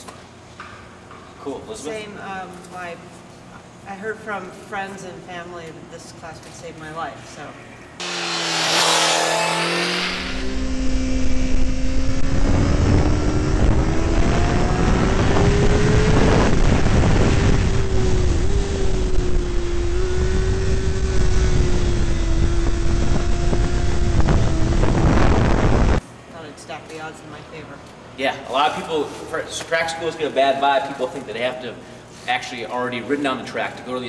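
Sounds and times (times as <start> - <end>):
motorcycle engine at high revs: 8.0 - 26.0
motorcycle passing: 8.0 - 26.0
wind buffeting on microphone: 11.6 - 19.6, 20.4 - 26.0.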